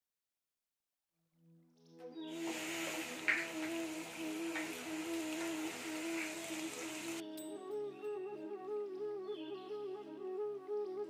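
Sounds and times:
soft hummed background music: 2.1 - 11.0
garlic sizzling in hot oil: 2.3 - 7.2.

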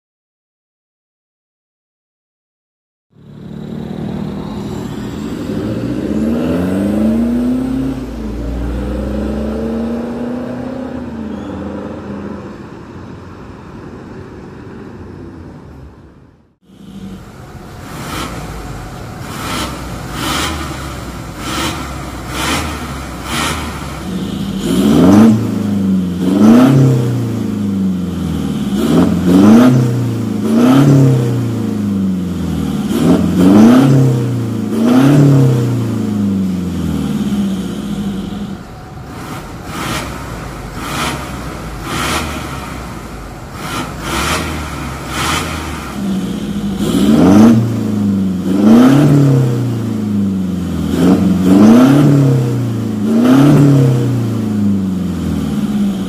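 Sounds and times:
diesel engine revving: 3.1 - 13.4, 16.6 - 56.0
quick engine rev blips: 17.8 - 27.6, 43.6 - 49.8.

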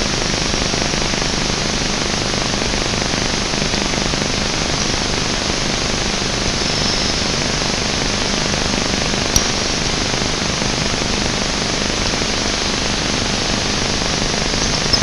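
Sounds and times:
static hiss: 0.0 - 15.0
click: 9.3 - 9.5.

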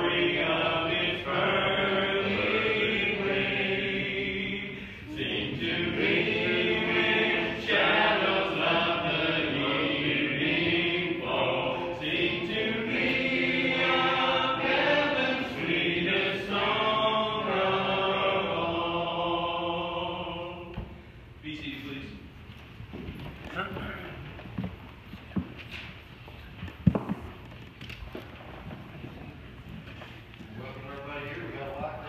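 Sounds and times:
congregation singing a hymn: 0.0 - 21.0.

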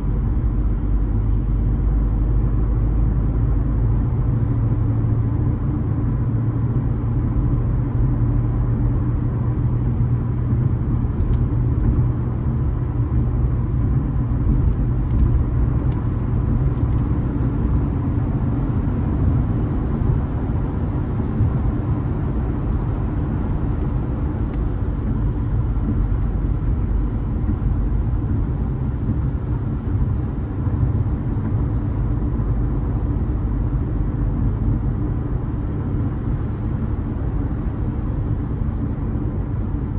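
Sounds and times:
car engine rumble: 0.0 - 39.9
road noise: 0.0 - 39.9.

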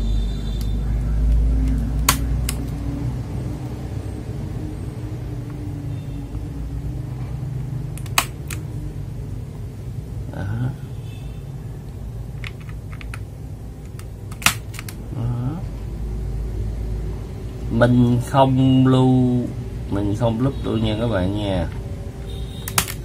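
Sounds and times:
keyboard switches clicking: 8.0 - 8.7, 13.9 - 15.0.

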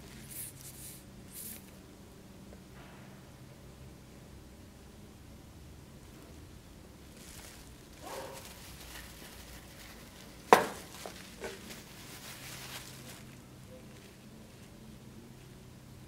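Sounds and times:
gloved hands rustling: 7.1 - 15.7.

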